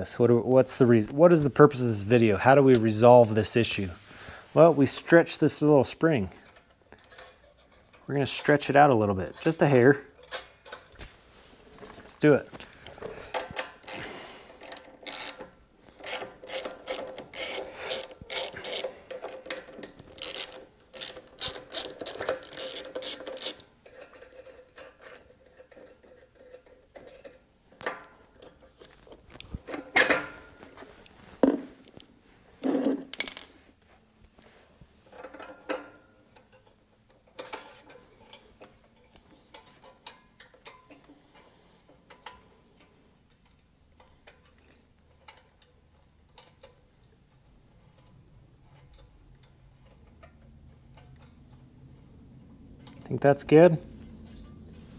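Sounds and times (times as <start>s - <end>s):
metal parts clicking and knocking: 6.4s - 8.7s, 14.6s - 30.4s, 32.7s - 33.6s, 35.1s - 42.4s, 43.3s - 51.6s
hand ratchet clicking: 13.3s - 25.1s.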